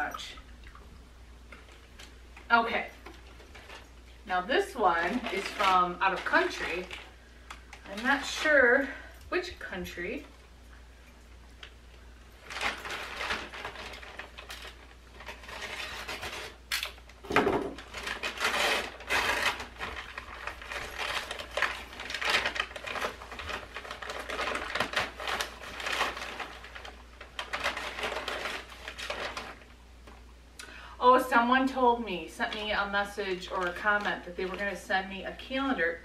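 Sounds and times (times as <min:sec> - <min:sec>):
paper rustling: 0:01.5 - 0:04.0, 0:04.6 - 0:08.6, 0:11.6 - 0:30.2
paper envelope tearing: 0:12.4 - 0:17.2, 0:17.8 - 0:29.7.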